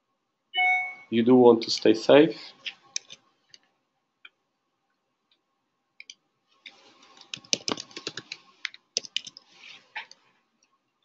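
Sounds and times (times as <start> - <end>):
typing on computer keyboard: 3.0 - 3.2, 7.0 - 9.4.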